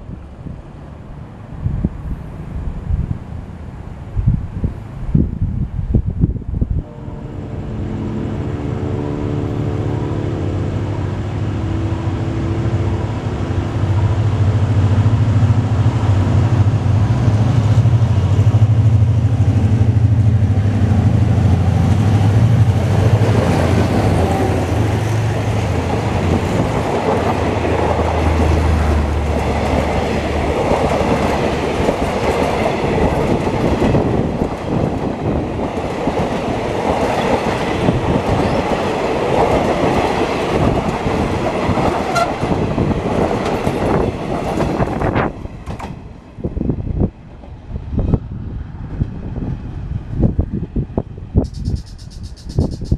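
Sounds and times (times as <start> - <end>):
diesel locomotive engine drone: 0.0 - 52.9
train wheels clattering on rail: 21.4 - 46.1.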